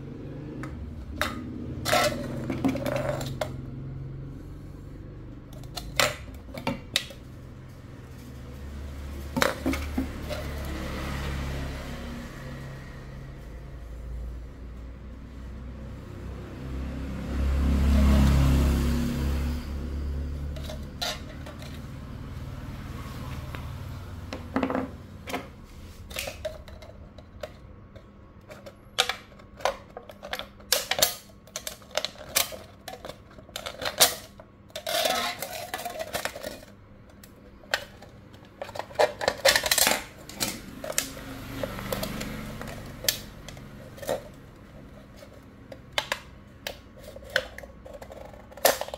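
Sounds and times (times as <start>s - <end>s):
knife cutting aluminium can: 28.6s - 36.7s, 38.6s - 45.4s, 46.0s - 48.9s.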